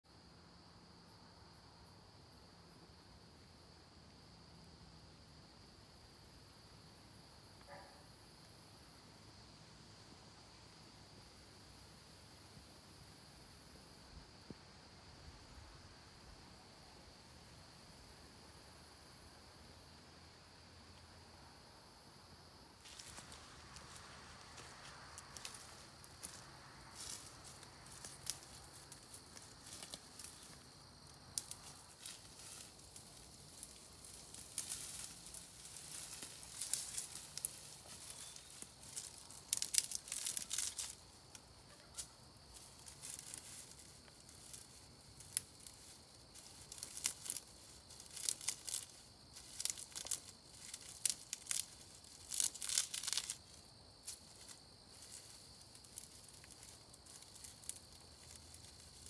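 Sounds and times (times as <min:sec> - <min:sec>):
dry grass rustling and crackling: 0:22.8 - 0:59.0.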